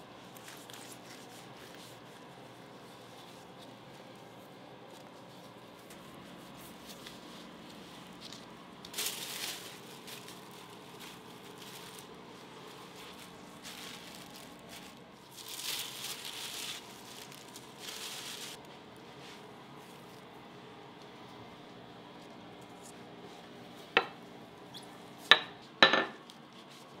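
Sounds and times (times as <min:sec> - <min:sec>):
faint steady hum: 0:00.0 - 0:27.0
plastic sheet crinkling: 0:00.2 - 0:18.9.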